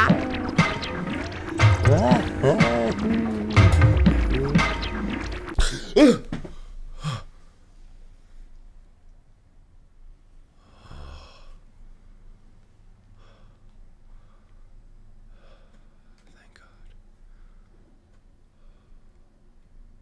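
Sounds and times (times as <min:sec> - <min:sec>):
man breathing: 0:05.6 - 0:07.6, 0:10.6 - 0:11.6, 0:13.1 - 0:16.3, 0:17.2 - 0:19.2.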